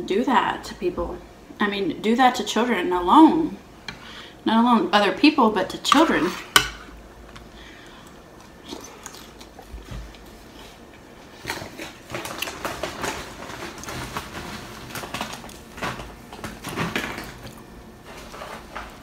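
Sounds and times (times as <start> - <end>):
chewing and wet mouth noises: 7.3 - 12.6.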